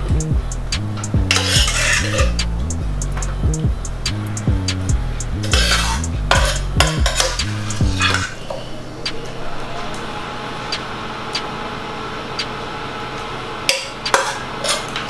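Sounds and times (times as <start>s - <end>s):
background music: 0.0s - 8.3s
steady hum: 0.0s - 15.0s.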